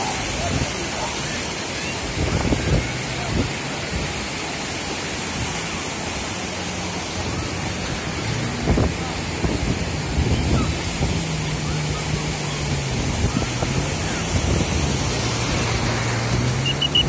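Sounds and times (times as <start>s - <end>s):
ocean surf breaking: 0.0s - 17.0s
wind rumble on microphone: 2.0s - 4.4s, 7.2s - 17.0s.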